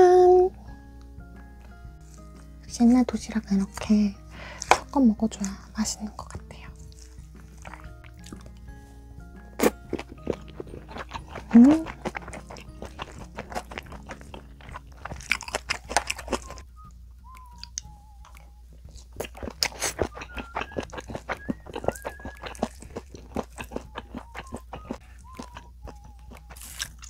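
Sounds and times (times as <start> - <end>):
chewing and crunching food: 3.7 - 27.0.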